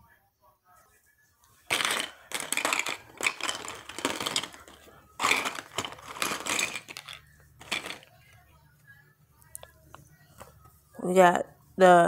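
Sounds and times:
plastic pieces clattering and rustling: 1.7s - 8.1s.

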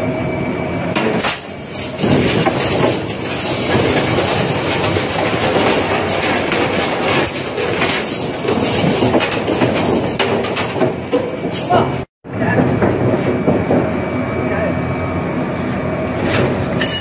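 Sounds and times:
shredder grinding wire: 0.9s - 11.7s.

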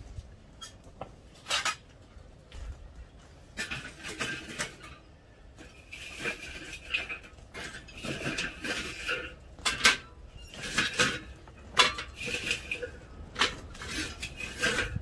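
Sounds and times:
metal cookware clanking: 5.7s - 15.0s.

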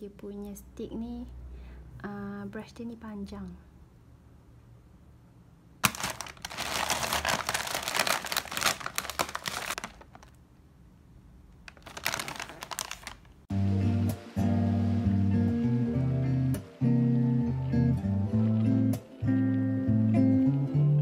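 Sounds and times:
plastic pouch crinkling: 5.8s - 10.4s, 11.6s - 13.4s.

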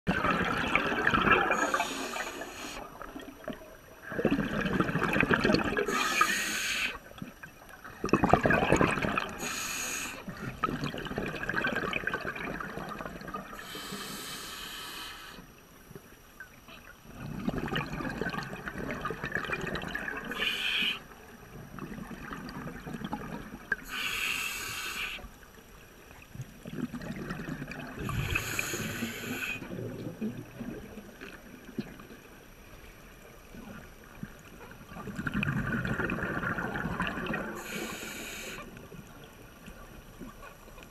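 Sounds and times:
bubbles rushing underwater: 0.1s - 1.9s, 2.9s - 6.0s, 7.3s - 9.4s, 10.4s - 13.6s, 17.1s - 20.3s, 21.4s - 23.8s, 26.5s - 29.0s, 29.6s - 32.1s, 34.8s - 37.7s
regulator breathing hiss: 1.6s - 3.0s, 5.9s - 7.0s, 9.4s - 10.4s, 13.6s - 15.5s, 20.3s - 21.1s, 23.8s - 25.4s, 28.0s - 29.7s, 37.6s - 38.7s.

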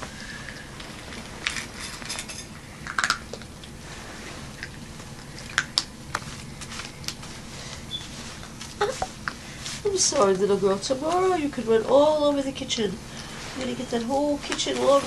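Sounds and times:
puppy eating from metal bowl: 1.4s - 3.8s.

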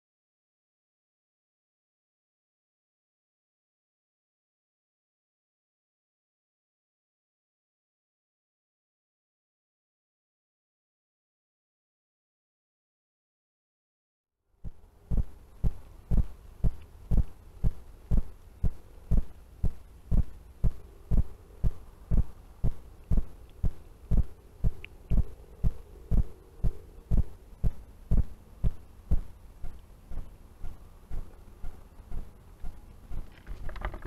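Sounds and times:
faint steady hum: 14.4s - 34.0s
short low thumps: 14.6s - 31.4s.

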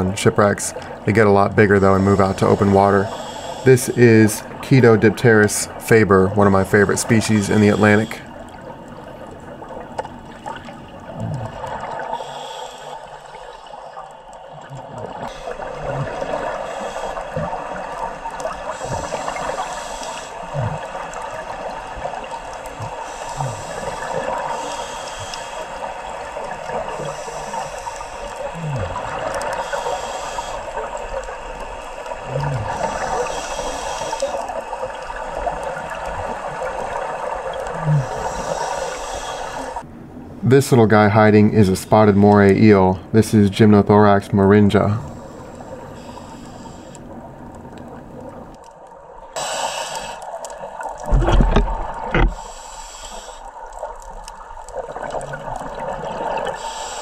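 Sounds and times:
diver breathing through regulator: 1.8s - 4.6s, 6.9s - 8.4s, 11.2s - 14.0s, 14.8s - 21.2s, 22.6s - 31.0s, 32.0s - 34.8s, 37.7s - 39.8s, 45.0s - 47.1s, 49.4s - 50.5s, 51.3s - 53.8s, 56.3s - 57.0s.

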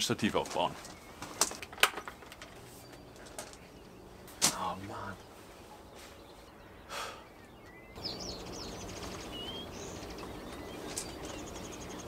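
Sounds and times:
background rustle: 0.0s - 6.5s, 8.7s - 12.0s
songbirds twittering: 0.0s - 12.0s.

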